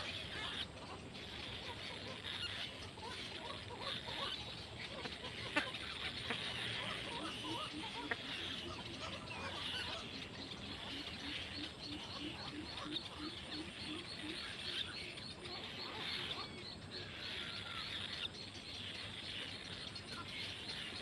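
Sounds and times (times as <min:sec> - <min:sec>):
birds calling: 0:00.0 - 0:21.0.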